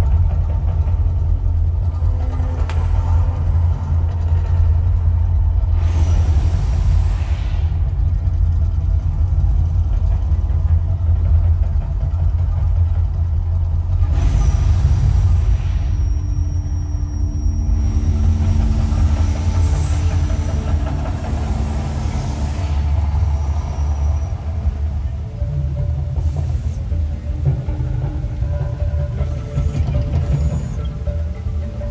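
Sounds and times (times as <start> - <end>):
deep steady rumble: 0.0 - 31.9.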